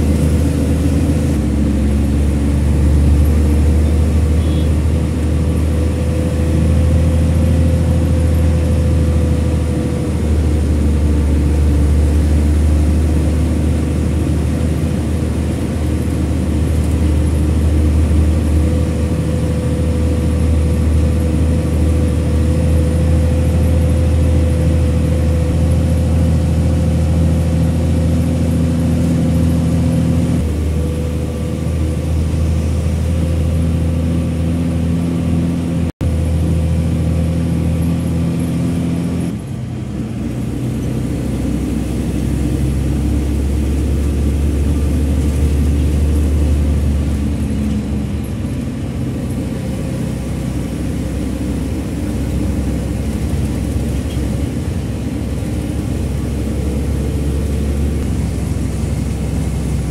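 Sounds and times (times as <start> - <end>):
vehicle engine and road noise: 0.0 - 59.9.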